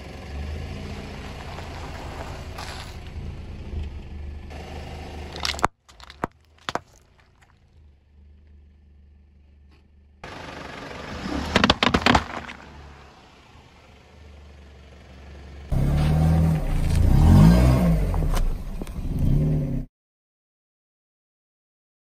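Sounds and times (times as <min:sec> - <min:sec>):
car engine running: 0:00.0 - 0:19.8
car crunching objects: 0:00.3 - 0:03.4, 0:04.5 - 0:08.6, 0:10.2 - 0:14.0, 0:15.7 - 0:19.4.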